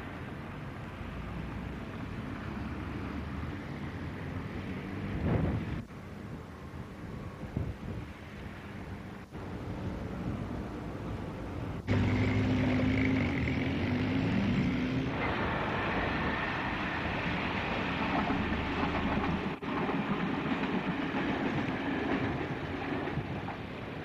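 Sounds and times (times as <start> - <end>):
diesel train engine drone: 0.0 - 24.0
train rumble: 0.0 - 24.0
high engine whine: 9.4 - 19.7.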